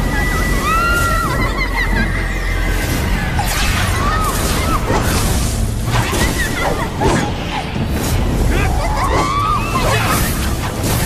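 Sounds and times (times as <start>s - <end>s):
dramatic music: 0.0s - 11.0s.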